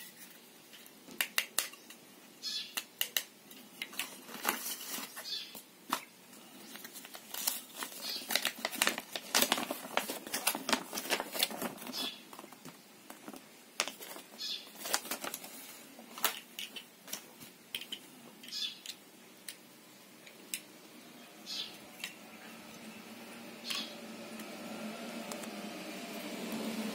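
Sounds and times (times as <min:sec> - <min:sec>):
paper and cardboard crackling: 0:03.9 - 0:17.5.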